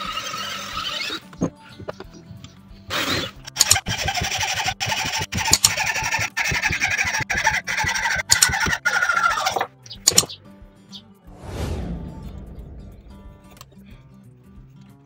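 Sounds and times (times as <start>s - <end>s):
hacksaw rasping through wood: 2.9s - 9.6s.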